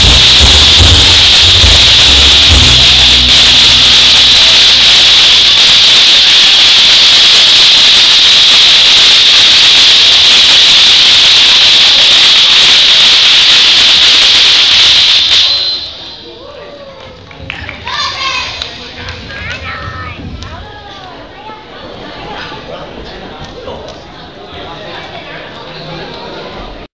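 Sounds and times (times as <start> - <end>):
audience applause: 0.0 - 8.2.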